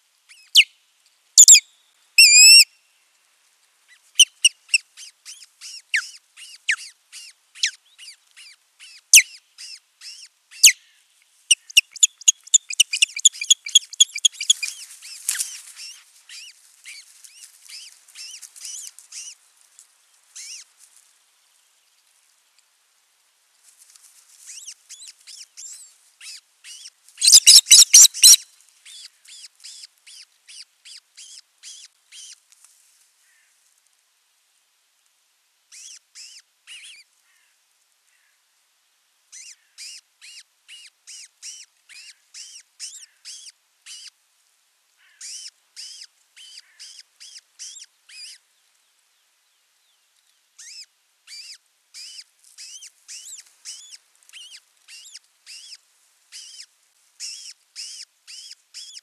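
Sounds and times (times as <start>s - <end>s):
osprey chirping calls: 1.4s - 2.6s, 11.5s - 17.0s, 24.5s - 32.4s, 50.6s - 59.0s.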